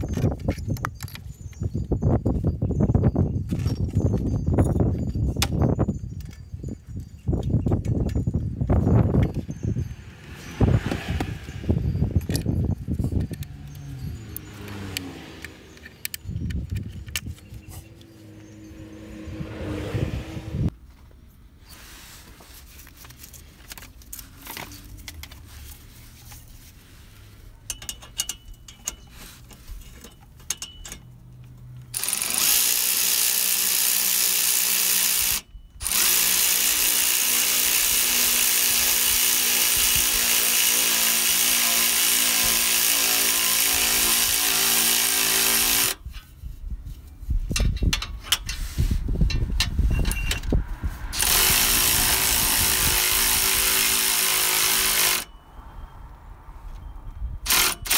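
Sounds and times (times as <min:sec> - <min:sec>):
cordless power tool running: 0:32.0 - 0:46.0, 0:51.2 - 0:55.3.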